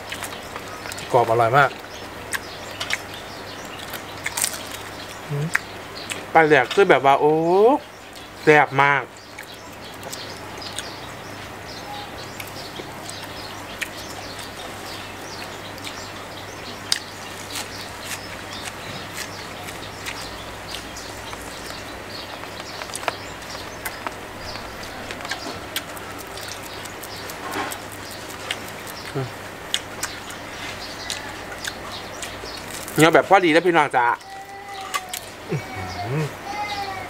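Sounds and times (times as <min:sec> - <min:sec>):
people chewing crispy food: 0:00.0 - 0:06.8, 0:09.3 - 0:11.2, 0:12.3 - 0:33.4, 0:34.3 - 0:36.4
birds chirping: 0:00.0 - 0:37.0
steady background hiss: 0:00.0 - 0:37.0
dove cooing: 0:34.3 - 0:37.0.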